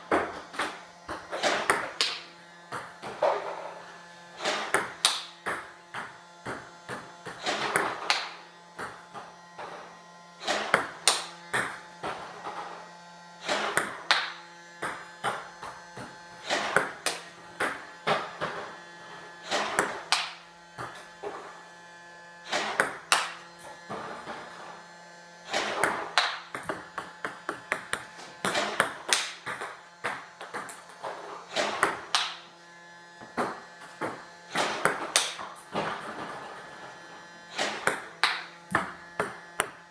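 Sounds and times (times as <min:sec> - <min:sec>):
ball bouncing on wooden floor: 0:00.0 - 0:03.7, 0:04.5 - 0:09.8, 0:10.5 - 0:12.6, 0:13.5 - 0:18.6, 0:19.6 - 0:21.0, 0:22.6 - 0:23.3, 0:25.5 - 0:32.3, 0:33.2 - 0:36.7, 0:37.6 - 0:39.9
table tennis ball hit by bat: 0:00.0 - 0:03.7, 0:04.4 - 0:09.8, 0:10.4 - 0:12.7, 0:13.4 - 0:18.7, 0:19.5 - 0:21.4, 0:22.5 - 0:24.4, 0:25.5 - 0:32.5, 0:33.2 - 0:36.5, 0:37.5 - 0:39.9.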